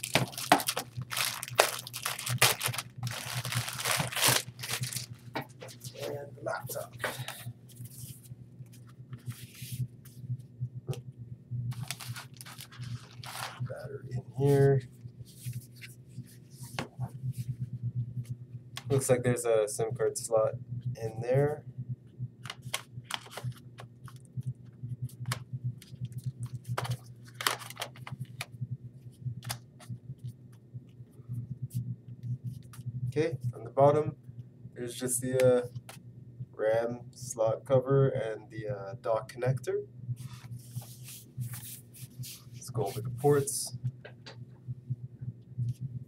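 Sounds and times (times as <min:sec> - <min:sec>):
laptop handling rustles and scrapes: 0:00.0 - 0:09.9, 0:11.7 - 0:13.7, 0:22.5 - 0:23.7, 0:26.2 - 0:28.4, 0:40.2 - 0:43.5
steady low hum: 0:00.0 - 0:46.0.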